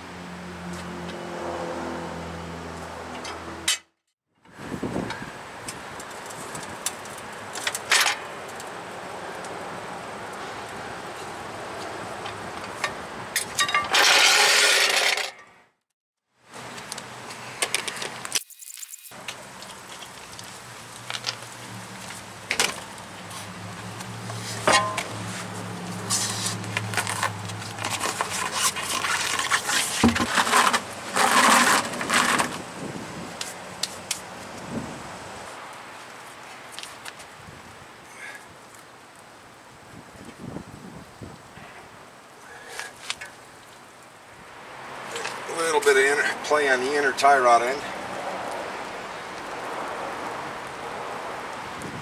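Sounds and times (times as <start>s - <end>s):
knocks and scrapes of wheel: 12.2s - 15.6s, 22.5s - 32.8s
metal lug nuts clinking: 12.8s - 15.5s, 24.6s - 25.1s.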